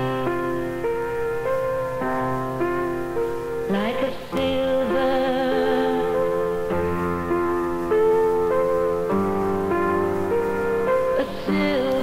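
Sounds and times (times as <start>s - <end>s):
singing with vibrato: 0.0s - 1.3s, 3.5s - 8.5s, 10.3s - 12.0s
keyboard accompaniment: 0.0s - 12.0s.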